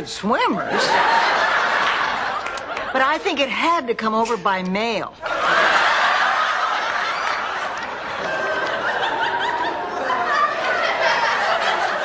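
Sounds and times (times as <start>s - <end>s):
audience laughing: 0.4s - 3.0s, 5.2s - 12.0s.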